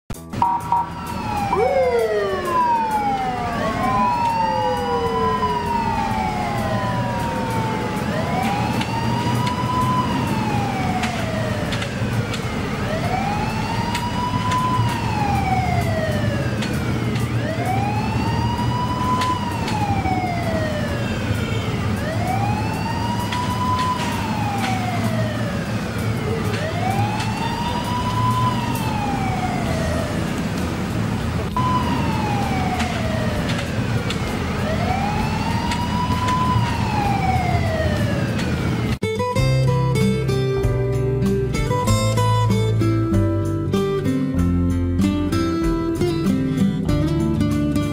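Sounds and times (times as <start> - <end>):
low engine rumble: 0.1 - 39.0
siren rising and falling: 0.2 - 39.0
siren sliding down in pitch: 0.2 - 39.0.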